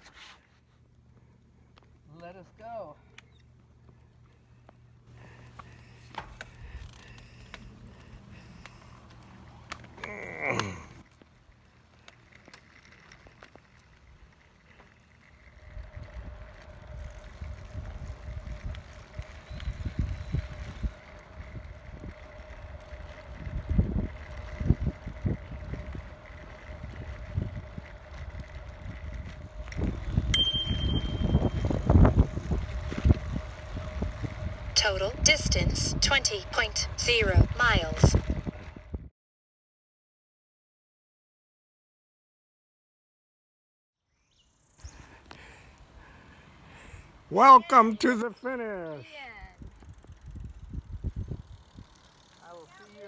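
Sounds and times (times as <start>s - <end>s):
riding noise: 10.9s - 39.0s
wind buffeting: 15.4s - 39.1s, 49.5s - 52.1s
bicycle bell ding: 30.4s - 31.8s.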